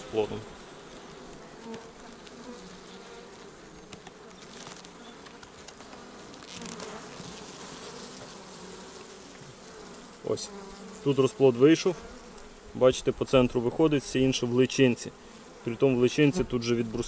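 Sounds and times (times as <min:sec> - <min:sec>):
honeybees buzzing: 0:00.0 - 0:17.0.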